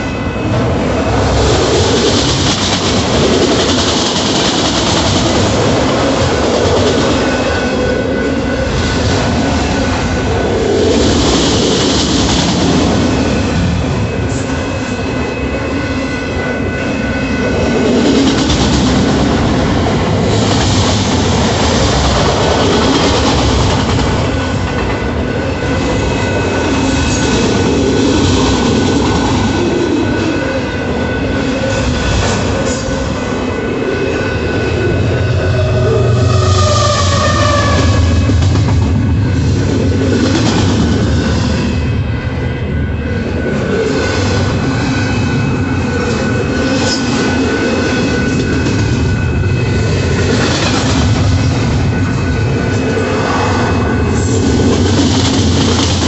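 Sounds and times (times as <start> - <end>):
freight train wheels rumbling on rail: 0.0 - 56.0
high wheel squeal: 25.4 - 38.4.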